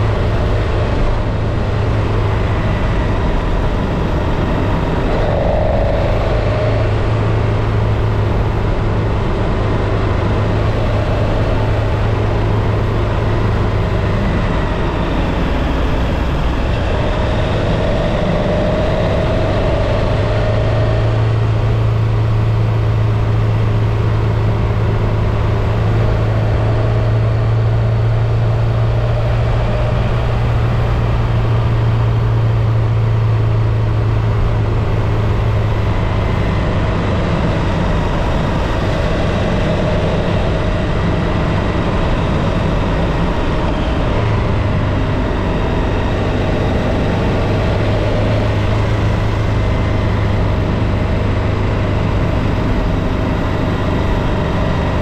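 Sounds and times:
motorcycle engine running: 0.0s - 55.0s
wind rushing: 1.2s - 12.7s.

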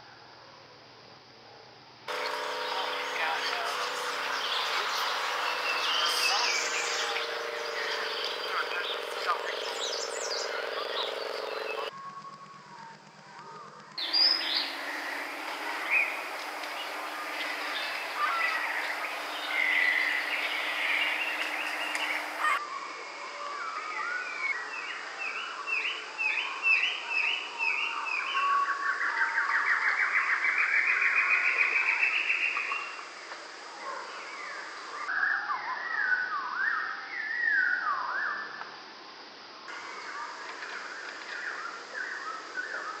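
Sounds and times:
rising bird trill: 2.1s - 12.6s, 14.0s - 22.6s
songbirds singing: 2.1s - 38.7s, 39.7s - 43.0s.

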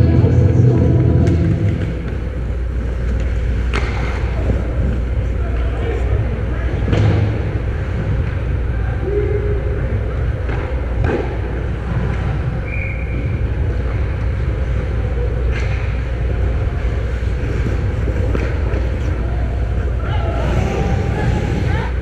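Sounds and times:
low rumble: 0.0s - 3.6s
hockey sticks and puck clacking: 1.2s - 5.0s, 17.2s - 19.9s.

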